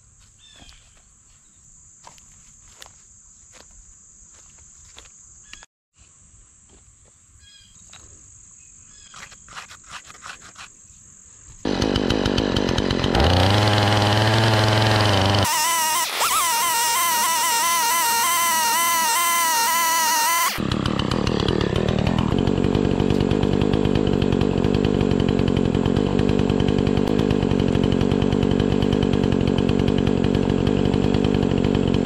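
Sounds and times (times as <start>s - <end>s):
insects humming: 0.1s - 11.7s
bird chirps: 0.4s - 1.6s, 7.4s - 8.0s, 8.6s - 9.4s
chainsaw cutting log: 9.2s - 10.7s, 11.6s - 32.0s.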